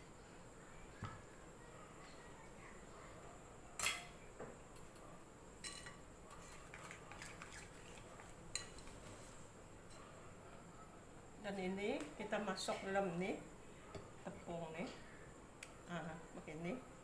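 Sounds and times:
metal utensils and dishes clinking: 3.8s - 4.1s.

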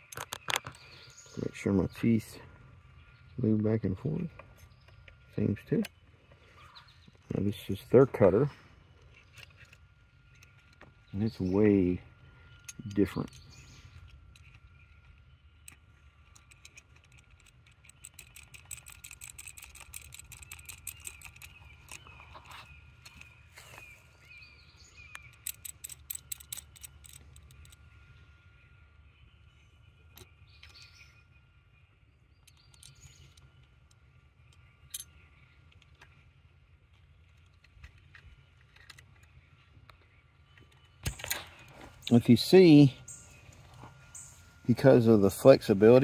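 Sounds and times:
birds chirping faintly: 0.0s - 46.0s
cutter rasping against chain tooth: 16.5s - 22.5s, 25.2s - 27.8s.

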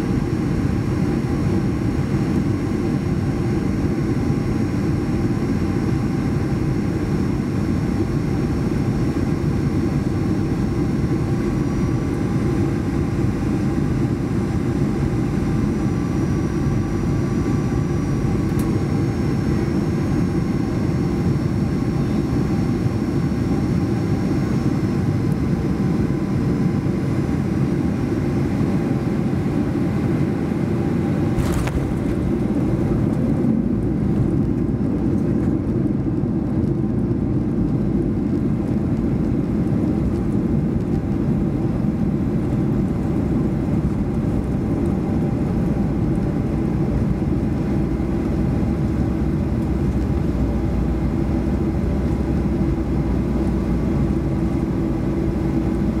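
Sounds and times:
aircraft cabin engine rumble: 0.0s - 56.0s
faint high whine: 8.9s - 34.0s.

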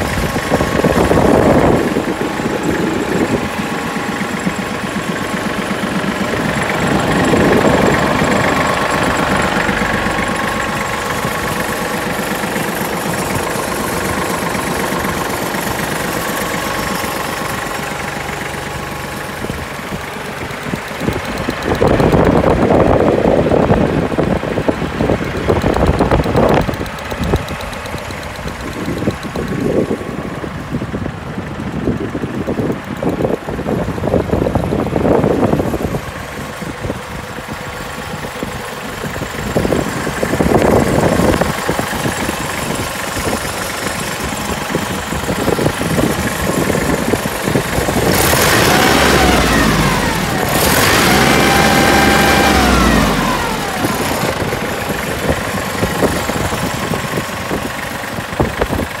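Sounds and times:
tractor diesel engine idling: 0.0s - 59.0s
tractor engine revving: 0.0s - 59.0s.

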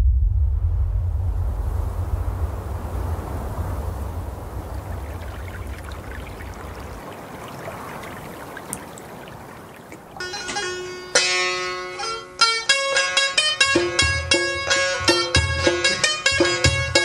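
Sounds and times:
deep rumble: 0.0s - 7.3s
river water rushing: 2.4s - 11.5s
plucked-string music: 10.2s - 17.0s.

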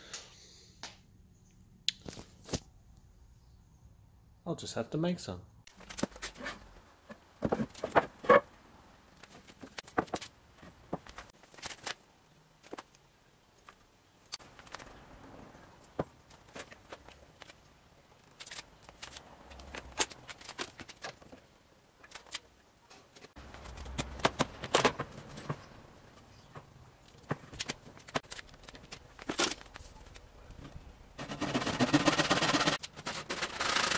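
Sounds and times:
wooden boards knocking: 7.1s - 8.4s.

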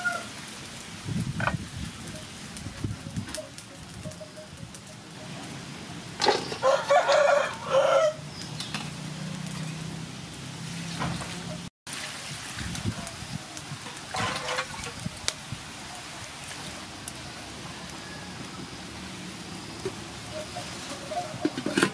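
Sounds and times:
rooster crowing: 0.0s - 0.4s, 6.5s - 8.3s, 16.9s - 18.9s.

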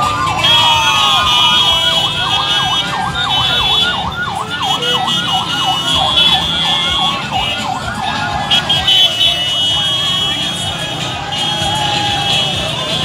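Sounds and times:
electronic siren wailing and yelping: 0.0s - 8.7s.

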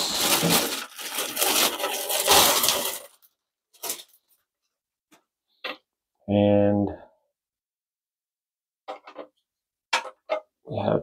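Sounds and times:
plastic wrapping crinkling: 0.0s - 4.4s.

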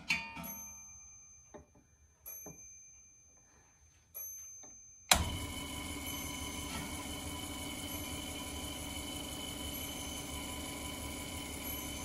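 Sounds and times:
electric motor humming: 5.2s - 12.0s.

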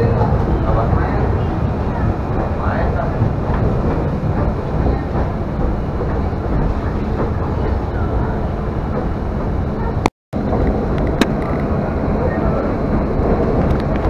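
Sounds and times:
train wheels rumbling on rail: 0.0s - 14.0s.

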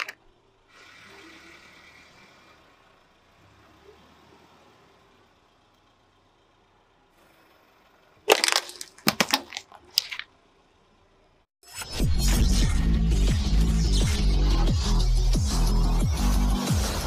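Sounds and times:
tyre crushing metal can: 8.3s - 10.3s.

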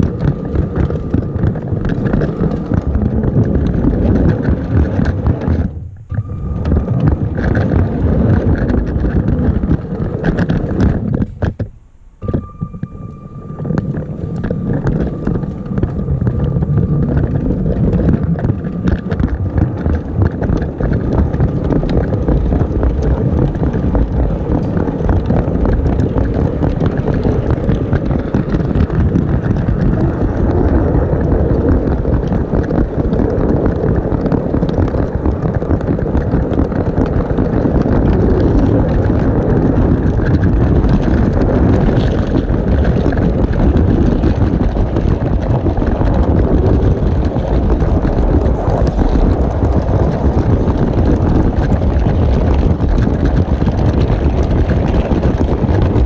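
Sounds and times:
clicking of wheels on track: 0.0s - 56.0s
toy train motor and wheels rumbling: 14.9s - 56.0s.

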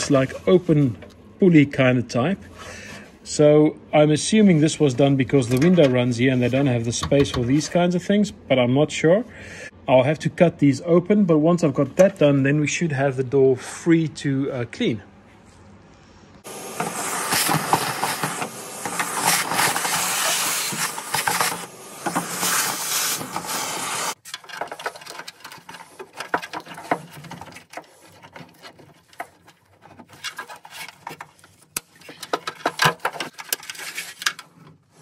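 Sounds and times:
rustling and scraping of wiring harness: 16.9s - 35.0s.

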